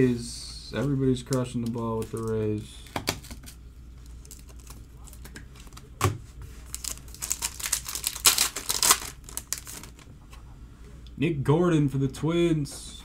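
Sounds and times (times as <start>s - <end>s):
wrapper crinkling and tearing: 1.7s - 6.0s, 6.6s - 10.1s.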